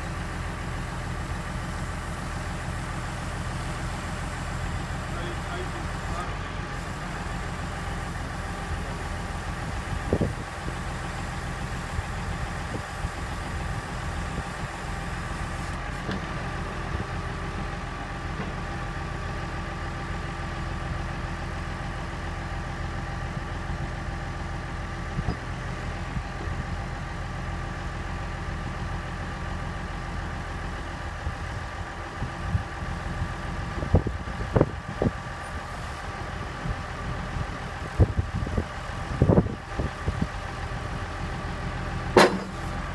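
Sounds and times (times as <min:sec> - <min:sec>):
tractor engine running: 0:00.0 - 0:42.9
high hydraulic whine: 0:00.7 - 0:11.5
sharp knocks: 0:42.2 - 0:42.6.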